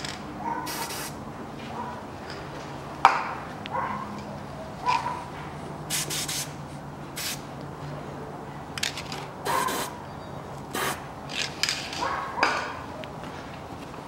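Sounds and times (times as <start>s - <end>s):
metal parts scraping and clinking: 11.3s - 12.1s.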